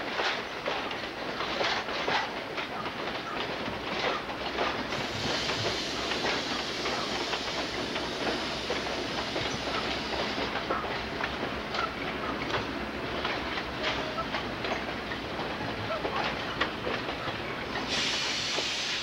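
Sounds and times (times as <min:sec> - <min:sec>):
train wheels clacking over rail joints: 0:00.0 - 0:19.0
diesel locomotive rumble: 0:03.5 - 0:19.0
steady hiss: 0:04.9 - 0:10.5, 0:17.8 - 0:19.0.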